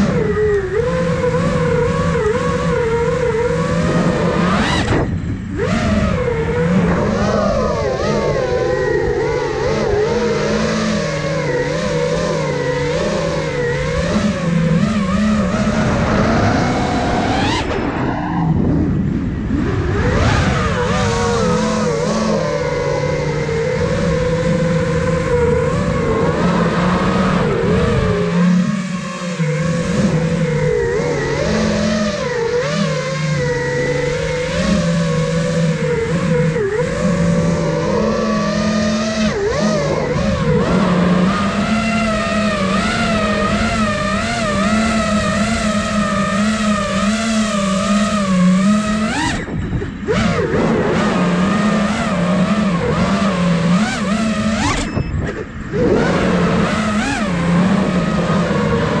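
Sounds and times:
quadcopter propeller and motor whine: 0.0 - 59.0.

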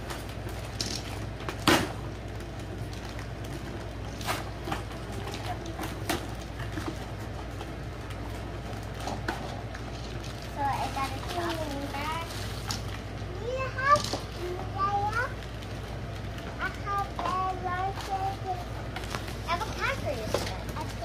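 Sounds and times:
plastic packaging crinkling: 0.0 - 13.4
steady low hum: 0.0 - 21.0.

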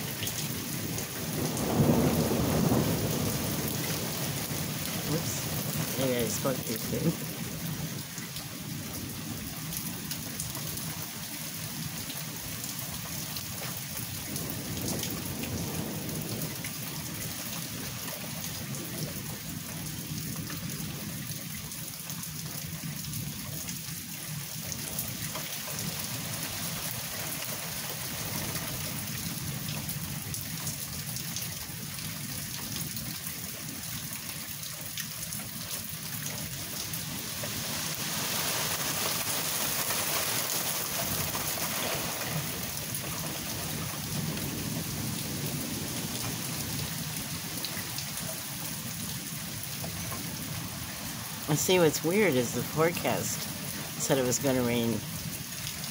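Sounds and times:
thunder rumbling: 0.0 - 8.0, 14.2 - 17.4, 42.0 - 48.3
rain falling: 0.0 - 55.9.

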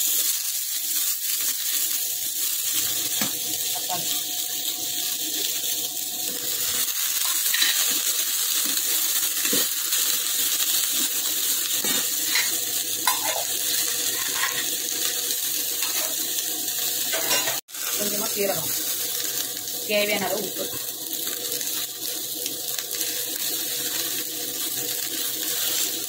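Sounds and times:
vegetables sizzling in a pan: 0.0 - 26.0
ladle clinking and scraping pan: 14.1 - 14.7, 17.1 - 17.6.

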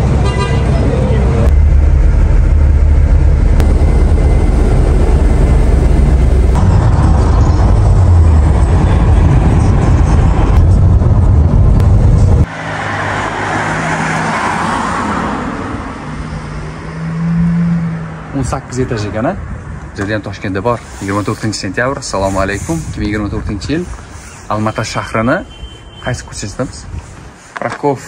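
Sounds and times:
car road rumble: 0.0 - 20.8
street traffic noise: 0.0 - 28.0.

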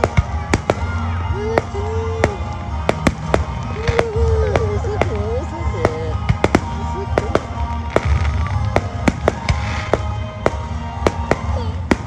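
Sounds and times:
fireworks bursting: 0.0 - 12.0
music playing: 0.0 - 12.0.

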